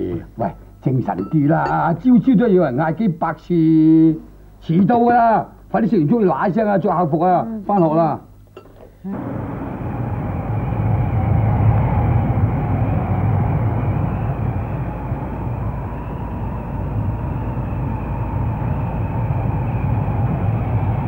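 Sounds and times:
steady low rumbling: 0:09.1 - 0:21.0.

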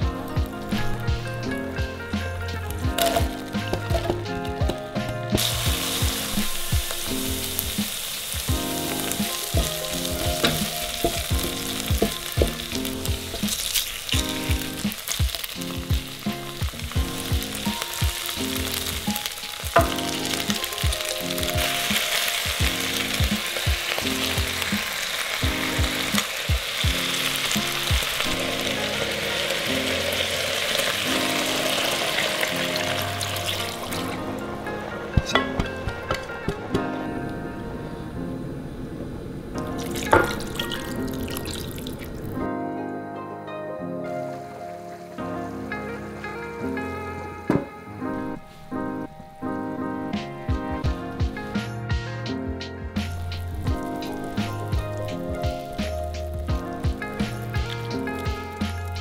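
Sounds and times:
background music with a beat: 0:00.0 - 0:37.1, 0:49.2 - 0:59.0
food sizzling in a pan: 0:00.2 - 0:34.4, 0:39.6 - 0:42.2, 0:53.0 - 0:59.0.

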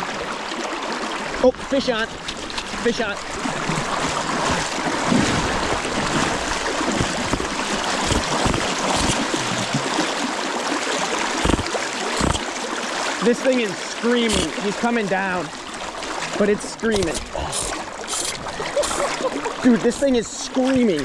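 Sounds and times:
river current rushing and splashing: 0:00.0 - 0:21.0
dull low thumps: 0:03.2 - 0:09.8.

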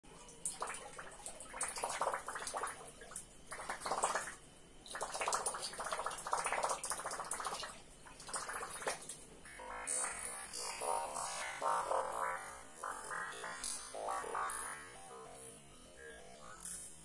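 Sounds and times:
lure churning and gurgling in water: 0:00.4 - 0:09.1.

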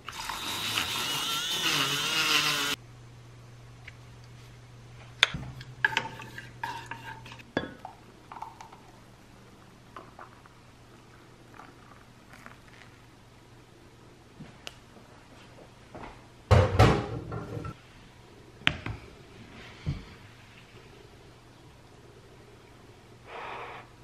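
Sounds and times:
electric milk frother whirring: 0:00.1 - 0:02.8
low steady hum: 0:02.7 - 0:23.3.

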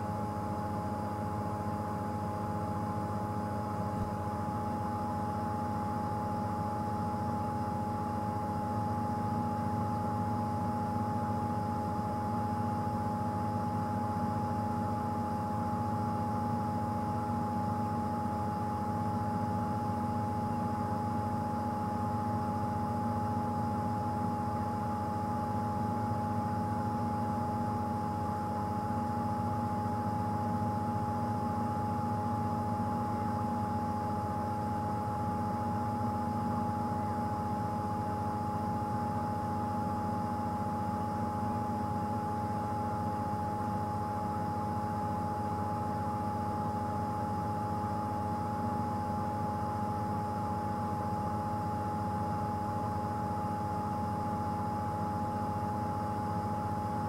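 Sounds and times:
mid-pitched whine: 0:00.0 - 0:57.0.

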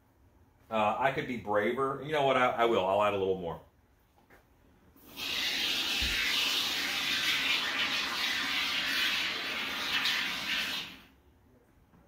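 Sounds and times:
aerosol foam spraying hiss: 0:05.0 - 0:11.1.

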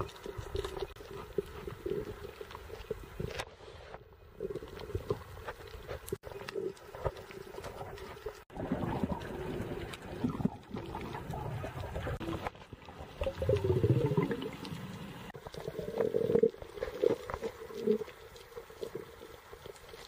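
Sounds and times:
muffled underwater sloshing: 0:04.4 - 0:20.0.

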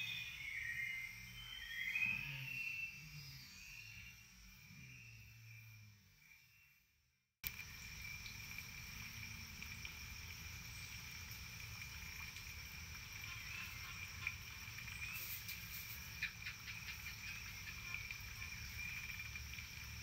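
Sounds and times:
bird chirps: 0:00.0 - 0:04.2
insects droning: 0:00.0 - 0:20.0.

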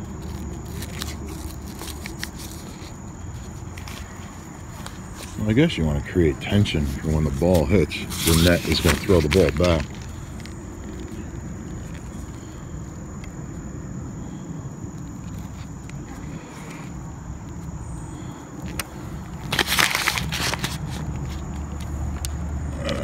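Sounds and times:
rustling and scraping: 0:00.0 - 0:05.7, 0:06.4 - 0:12.6, 0:15.2 - 0:17.7, 0:18.6 - 0:22.2
low wind rumble: 0:00.0 - 0:23.0.

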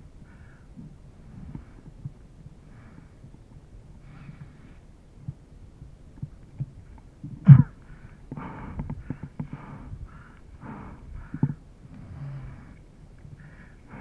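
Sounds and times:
rider breathing hard: 0:07.5 - 0:14.0.

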